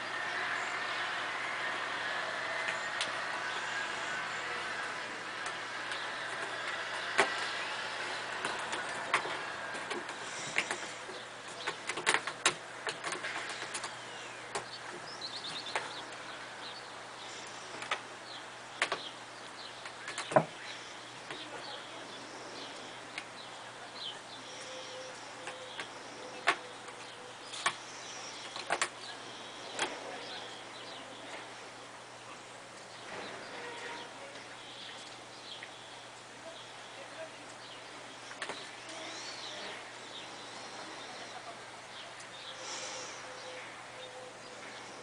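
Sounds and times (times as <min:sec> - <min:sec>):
faint bird chirps: 0:20.0 - 0:31.4.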